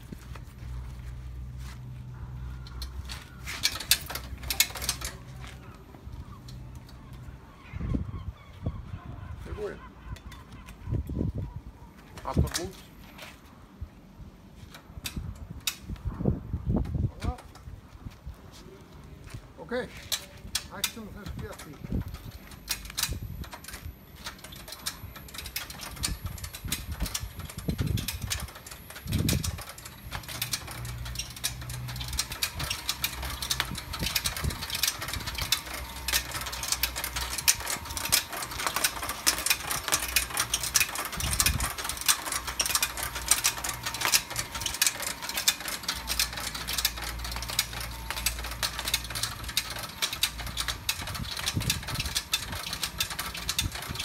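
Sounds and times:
machine mechanism clicking rapidly: 3.6 - 5.3, 20.1 - 54.0
motor hum: 26.0 - 54.0.

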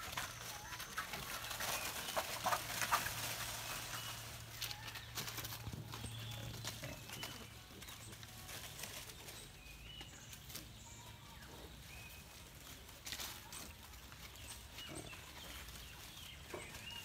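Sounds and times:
rustling of dry leaves: 0.0 - 17.0.

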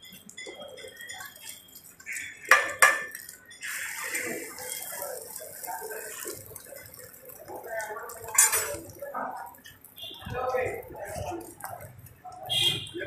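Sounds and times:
oil hissing on griddle: 1.0 - 12.2
metal spatula striking griddle: 2.4 - 3.3.

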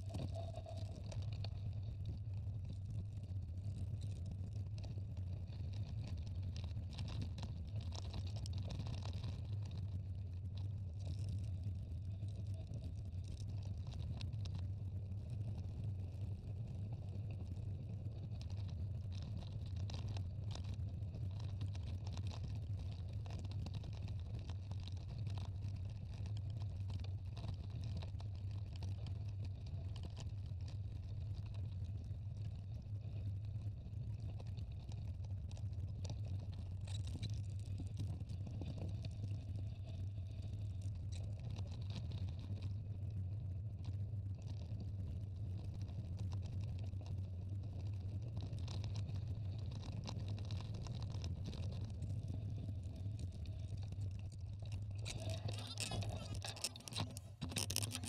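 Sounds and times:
small clicks and rattles: 0.0 - 58.0
wind rumble on microphone: 0.0 - 58.0
tyres crackling on stones: 53.1 - 58.0.

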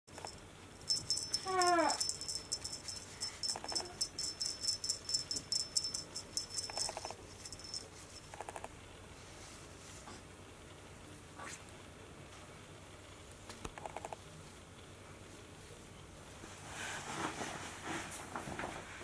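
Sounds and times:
baby toy rattle clicking: 0.2 - 8.7
kitten mewing: 1.5 - 2.0.

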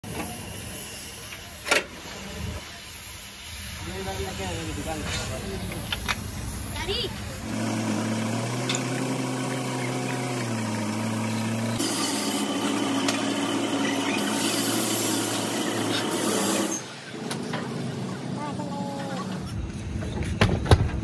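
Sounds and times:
hiss: 0.0 - 8.2, 8.8 - 17.5.

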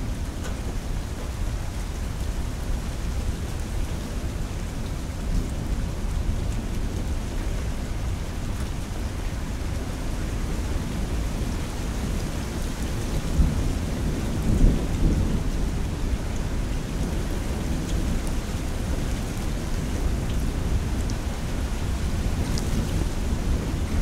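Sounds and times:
steady rain: 0.0 - 24.0.

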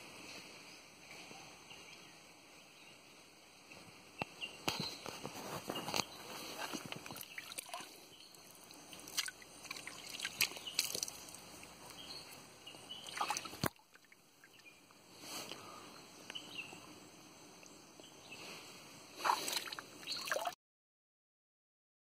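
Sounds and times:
water sloshing in tree stump: 6.6 - 11.8, 13.0 - 14.2, 19.2 - 20.6.

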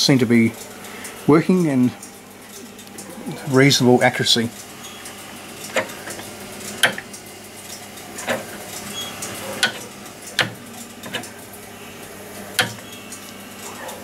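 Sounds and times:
steady low hum: 0.0 - 14.0
rotary switch clicking: 4.6 - 11.6, 12.4 - 13.4.

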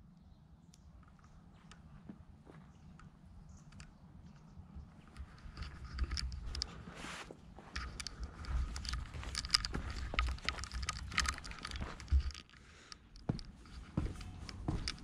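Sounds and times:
footsteps on gravel: 7.1 - 12.4.

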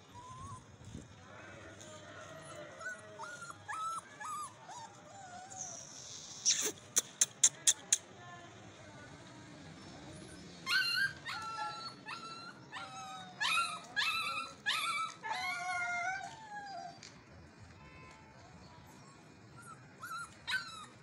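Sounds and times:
puppies whining and yipping: 0.0 - 0.8, 2.3 - 6.7, 10.3 - 17.1, 19.0 - 21.0.

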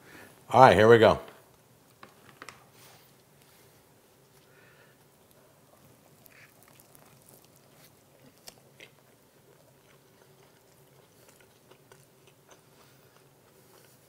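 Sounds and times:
faint chewing: 4.2 - 14.0
biting into burger: 5.8 - 14.0.

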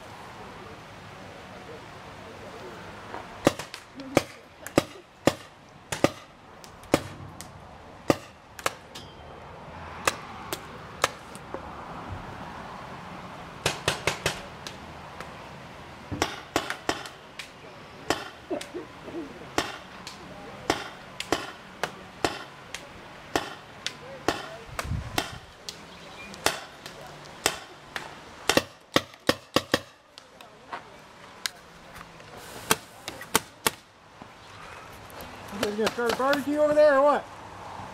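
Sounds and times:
paintball markers firing: 19.6 - 30.4.

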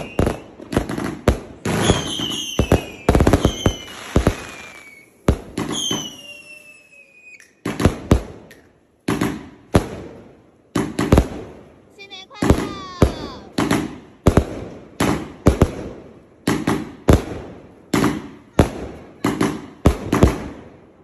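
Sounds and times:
firework whistles gliding down: 0.0 - 0.5, 1.8 - 7.6
firework bangs and crackle: 0.0 - 21.0.

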